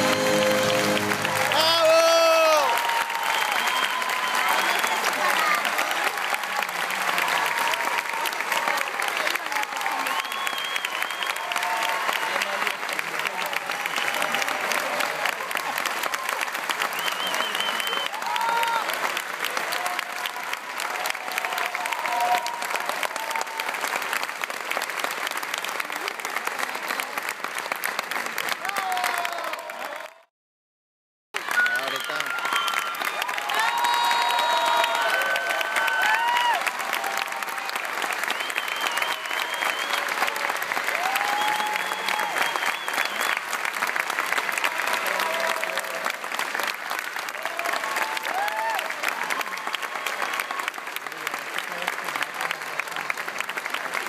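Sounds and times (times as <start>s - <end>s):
shouts: 0.0s - 10.3s, 18.1s - 19.0s, 19.6s - 23.8s, 28.6s - 30.2s, 31.4s - 37.8s, 40.0s - 42.6s, 47.3s - 50.8s
audience clapping: 0.0s - 30.3s, 31.3s - 54.0s
crowd applauding: 0.0s - 30.3s, 31.3s - 54.0s
long high whistle: 3.0s - 5.1s, 10.0s - 11.5s, 17.0s - 18.2s, 31.5s - 35.2s, 38.3s - 40.2s, 41.2s - 43.5s.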